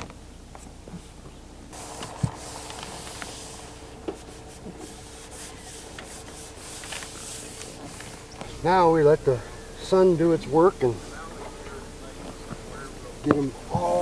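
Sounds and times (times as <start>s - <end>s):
hands rubbing a panel: 1.8s - 8.4s.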